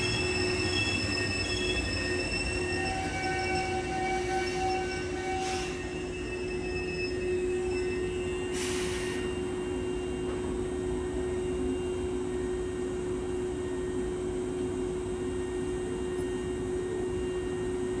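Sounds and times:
electric train hum: 0:00.0 - 0:18.0
air hiss: 0:08.5 - 0:09.3.

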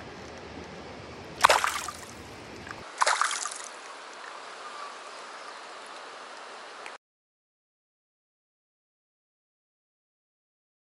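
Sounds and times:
stream rushing: 0:01.3 - 0:07.0
fish splashing in water: 0:01.4 - 0:04.4.

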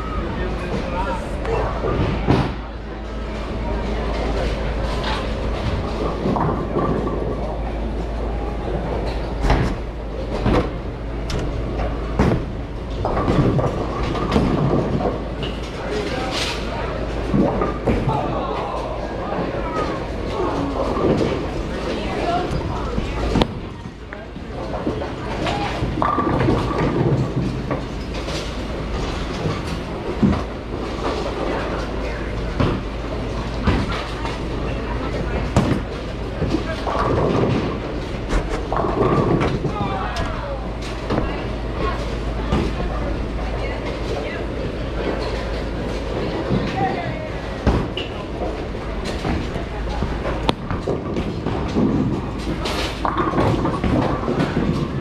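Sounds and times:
bowling balls rolling: 0:00.0 - 0:55.0.

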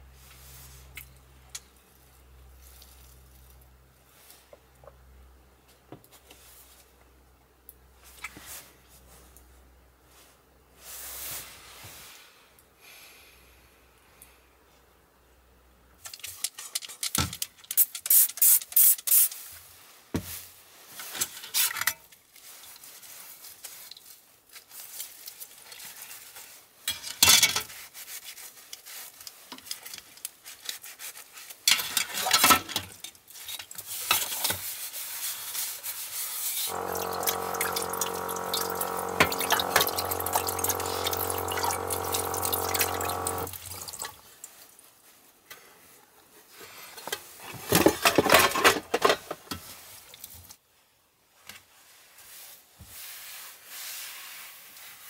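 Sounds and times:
sponge scrubbing metal plate: 0:36.7 - 0:44.0
steady hum: 0:36.7 - 0:44.0
tap water running into pot: 0:36.7 - 0:44.2.

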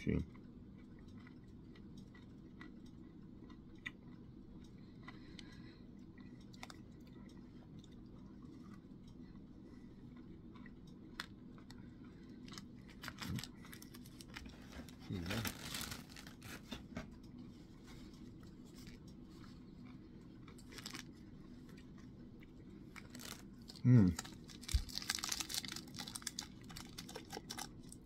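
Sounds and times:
wrapper crinkling: 0:12.9 - 0:16.6, 0:20.6 - 0:21.1, 0:23.0 - 0:27.9.

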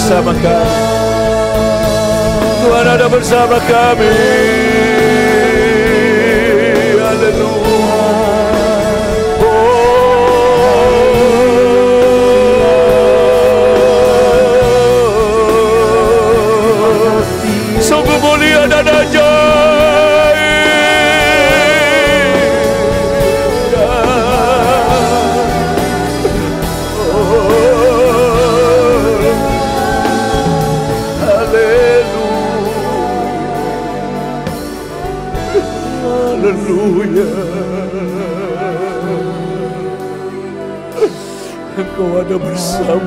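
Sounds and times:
band accompaniment: 0:00.0 - 0:43.0
person singing with vibrato: 0:00.0 - 0:43.0.

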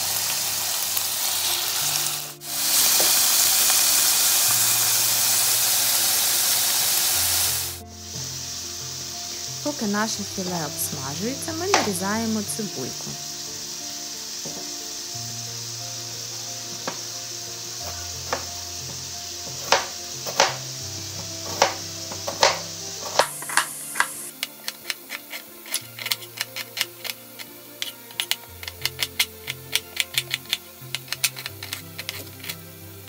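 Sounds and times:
meat sizzling in a frying pan: 0:00.0 - 0:33.0
knife chopping on plastic board: 0:19.5 - 0:20.6.

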